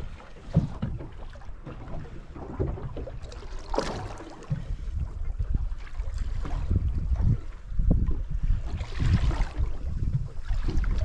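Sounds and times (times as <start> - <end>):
water lapping against boat hull: 0.0 - 11.0
wind buffeting microphone: 0.0 - 11.0.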